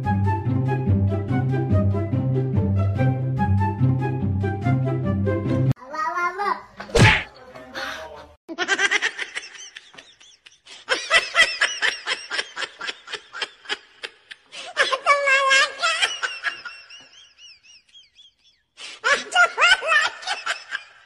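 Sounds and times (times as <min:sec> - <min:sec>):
person laughing: 0:08.5 - 0:21.0.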